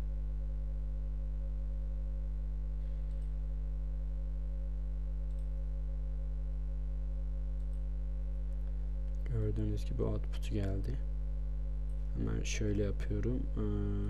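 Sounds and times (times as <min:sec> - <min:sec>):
electrical mains hum: 0:00.0 - 0:14.0
faint clicks: 0:03.0 - 0:03.4, 0:05.2 - 0:05.6, 0:07.6 - 0:07.9.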